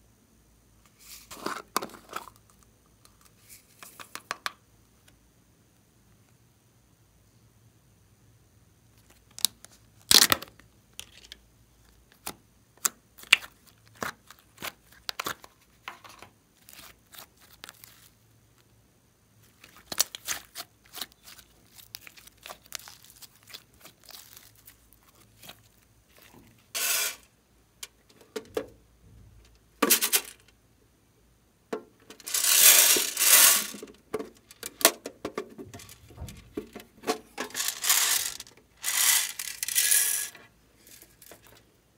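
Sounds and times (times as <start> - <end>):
slime squishing by hand: 12.1 - 15.8, 16.6 - 18.6, 19.4 - 26.6
slime tearing and crackling: 16.6 - 18.1, 19.6 - 26.3.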